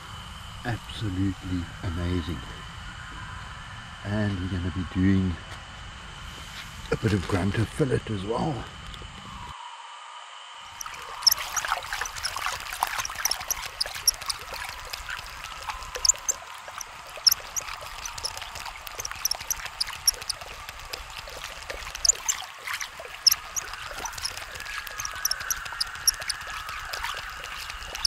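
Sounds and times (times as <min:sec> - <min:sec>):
pops and crackles: 0:10.8 - 0:28.0.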